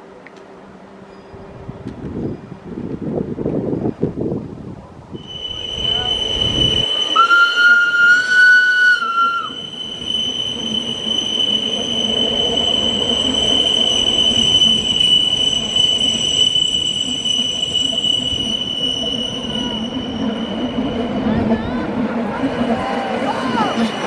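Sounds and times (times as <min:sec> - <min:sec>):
rumble of train wheels: 0:00.0 - 0:24.0
train wheels squealing on rails: 0:01.0 - 0:02.7, 0:05.1 - 0:24.0
lower wheel squeal: 0:05.1 - 0:24.0.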